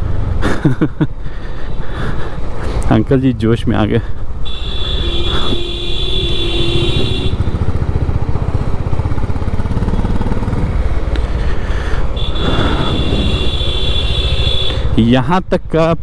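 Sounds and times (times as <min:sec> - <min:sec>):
motorcycle engine running: 0:04.5 - 0:15.0.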